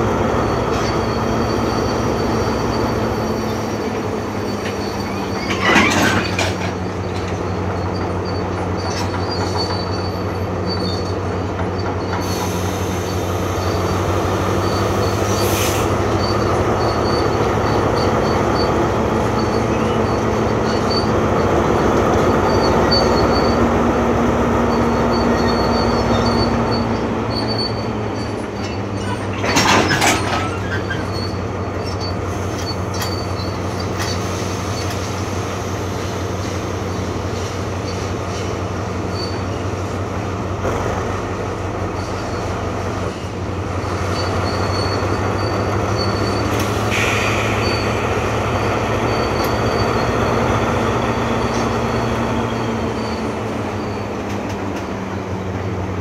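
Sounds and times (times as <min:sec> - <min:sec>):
diesel locomotive engine drone: 0:00.0 - 0:56.0
freight wagons rolling: 0:04.5 - 0:12.2.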